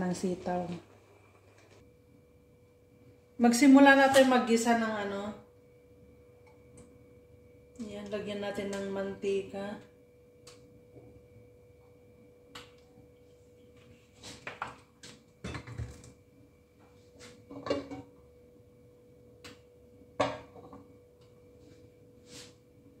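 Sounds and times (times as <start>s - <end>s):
faint steady hum: 0.0s - 23.0s
metal pot shifted on stovetop: 17.5s - 18.1s.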